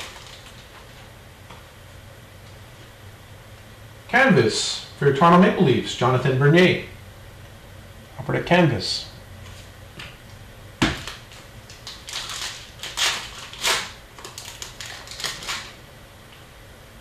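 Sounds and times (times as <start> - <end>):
wrapper crinkling: 0.0 - 1.0, 11.0 - 15.8.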